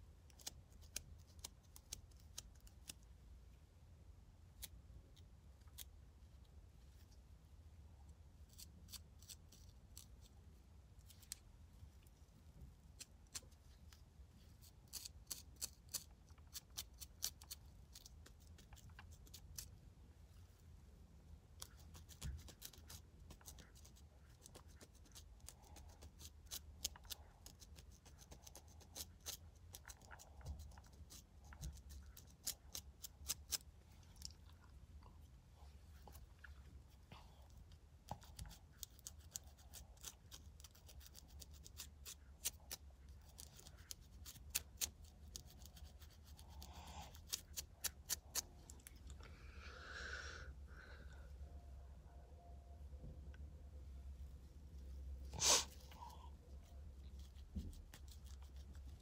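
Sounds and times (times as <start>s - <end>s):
comb scratching scalp: 12.8s - 19.8s, 21.6s - 34.3s, 38.1s - 48.6s, 57.0s - 59.0s.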